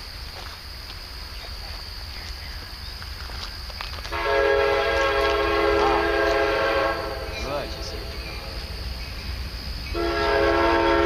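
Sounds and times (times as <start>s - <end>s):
locomotive air horn chord: 4.1s - 8.6s, 9.9s - 11.0s.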